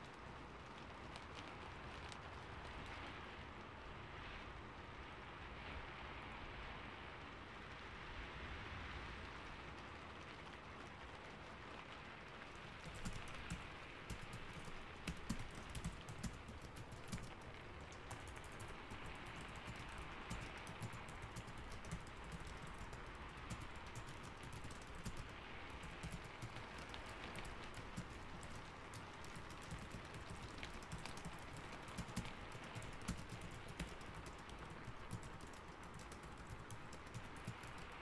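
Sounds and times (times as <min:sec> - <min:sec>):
steady rainfall: 0:00.0 - 0:38.0
computer keyboard typing: 0:12.5 - 0:38.0.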